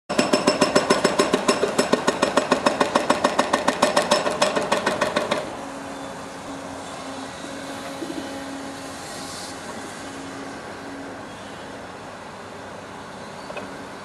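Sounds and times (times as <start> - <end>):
hydraulic breaker pounding: 0.1 - 5.5.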